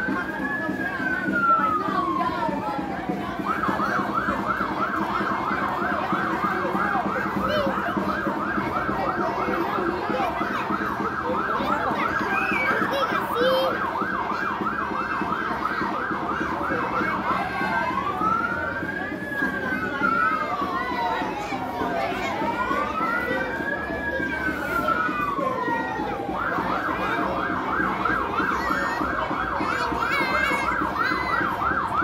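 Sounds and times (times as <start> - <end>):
electronic siren yelping and wailing: 0.4 - 12.9.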